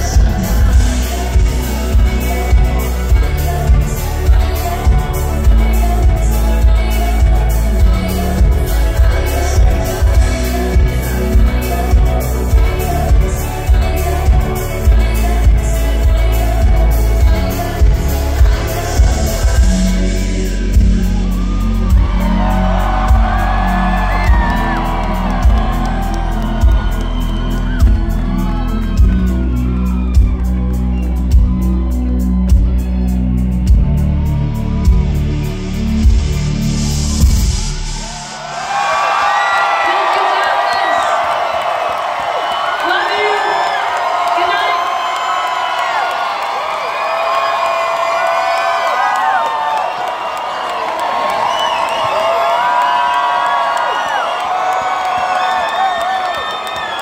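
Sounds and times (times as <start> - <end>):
woman singing: 0.0 - 30.6
live band playing pop song: 0.0 - 38.3
bass: 0.0 - 39.4
kick drum beat: 21.9 - 22.3, 23.0 - 28.2.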